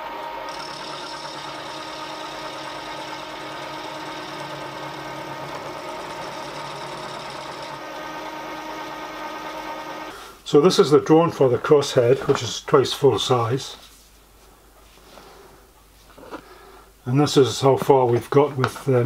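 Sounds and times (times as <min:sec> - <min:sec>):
milling machine cutting metal: 0:00.0 - 0:10.0.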